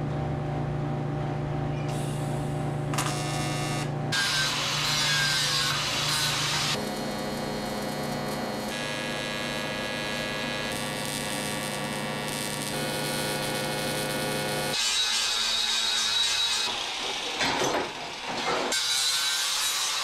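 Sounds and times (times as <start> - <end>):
welding arc buzzing: 1.9 - 17.2.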